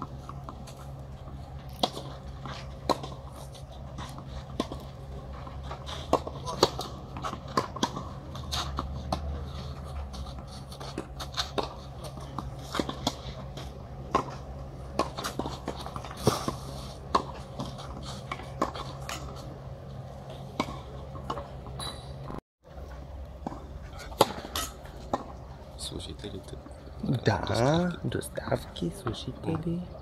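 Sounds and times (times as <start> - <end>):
racket hitting ball: 1.7 - 19.4, 23.4 - 25.3.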